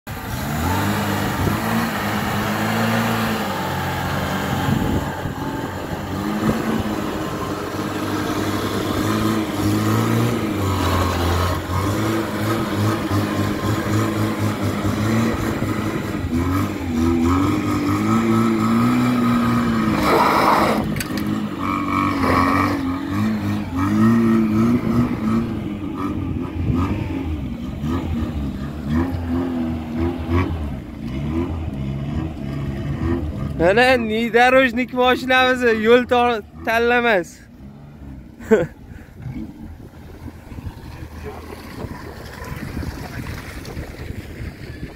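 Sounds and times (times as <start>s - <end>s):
off-road engines revving: 0.1s - 44.9s.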